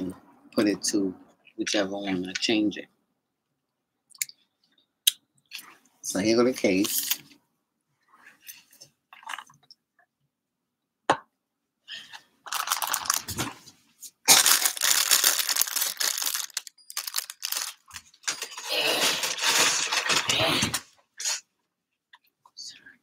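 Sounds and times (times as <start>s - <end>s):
packaging crinkling and tearing: 12.4s - 13.6s, 14.2s - 20.5s.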